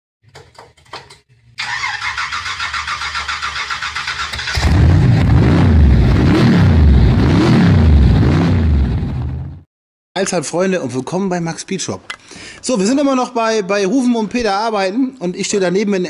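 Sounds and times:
car starter cranking: 0:01.6 - 0:05.0
car engine revving: 0:03.7 - 0:09.6.

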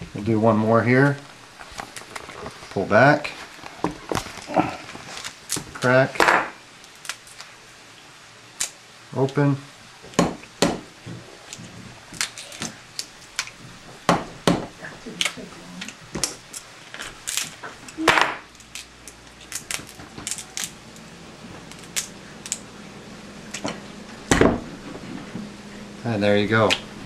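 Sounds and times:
crab shell cracking and crunching: 0:03.7 - 0:07.6, 0:08.5 - 0:08.8, 0:11.4 - 0:13.6, 0:15.2 - 0:22.7.

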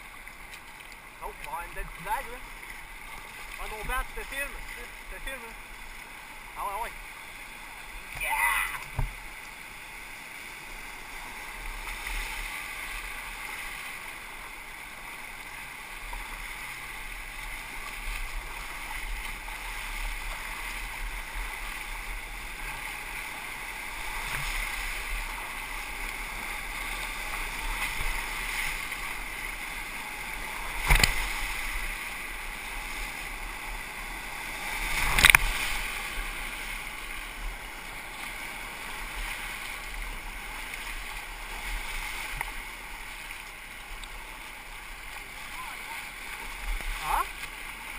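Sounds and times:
whitewater rapids rushing: 0:01.2 - 0:47.9
loud water splashes: 0:23.9 - 0:33.1, 0:34.4 - 0:37.2.

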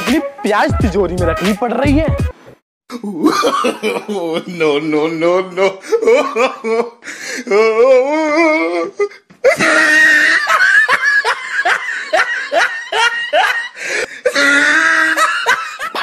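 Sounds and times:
high-pitched laughter: 0:09.5 - 0:13.8.

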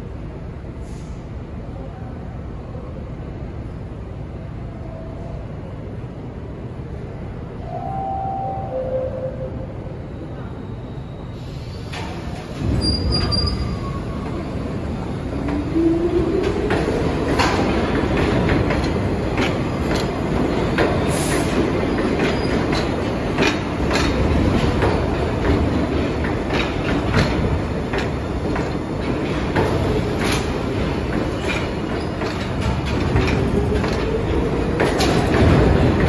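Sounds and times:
train wheels clattering on rails: 0:11.5 - 0:36.0
wheel squeal: 0:12.7 - 0:14.1.

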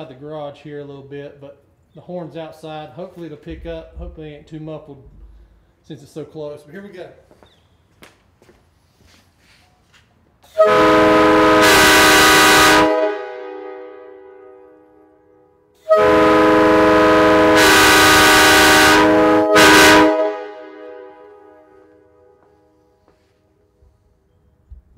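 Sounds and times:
air horn chord blasts: 0:10.5 - 0:23.0.

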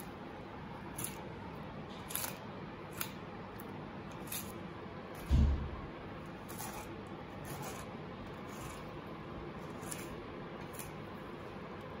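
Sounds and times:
knife scraping fish bones: 0:00.9 - 0:01.3, 0:02.0 - 0:03.2, 0:04.1 - 0:04.6, 0:06.4 - 0:09.0, 0:09.6 - 0:11.1
dull thump: 0:05.3 - 0:05.9.

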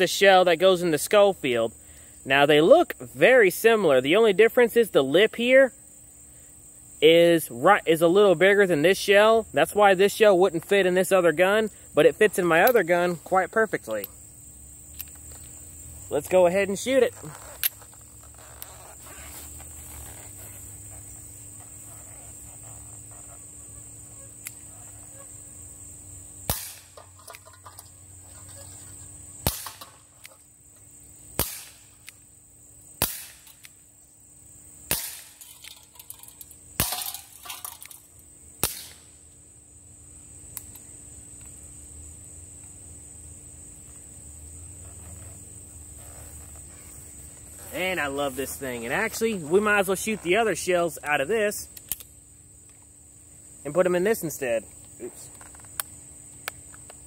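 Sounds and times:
air pistol sharp pops: 0:26.5 - 0:27.4, 0:29.4 - 0:30.4, 0:31.4 - 0:32.2, 0:33.0 - 0:33.8, 0:34.9 - 0:35.4, 0:38.6 - 0:39.1.

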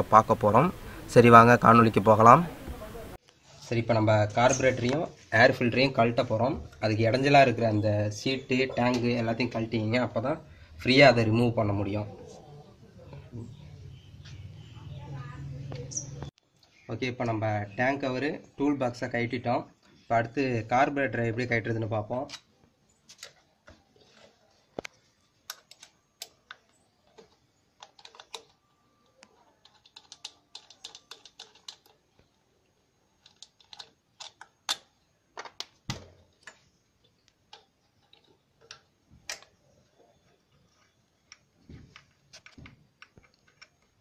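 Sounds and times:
small metal parts clicking: 0:25.4 - 0:32.4, 0:33.1 - 0:39.6, 0:40.7 - 0:44.0.

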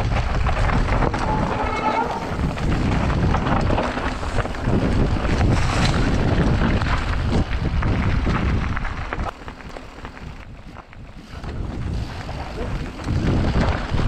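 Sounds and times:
wind buffeting microphone: 0:00.0 - 0:09.3, 0:10.2 - 0:14.0
bike rattling: 0:00.0 - 0:14.0
tyres rolling over dirt and stones: 0:00.0 - 0:14.0.

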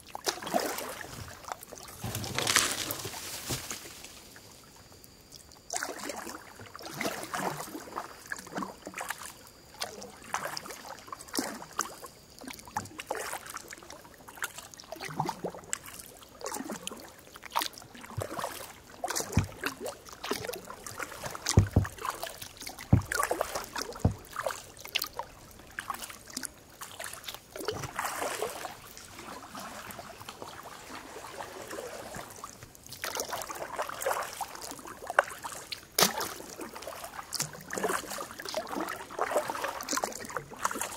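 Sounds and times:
paddle strokes splashing: 0:00.1 - 0:04.2, 0:14.3 - 0:40.9
dull knocks: 0:19.3 - 0:19.6, 0:21.5 - 0:22.1, 0:22.9 - 0:23.2, 0:24.0 - 0:24.3.

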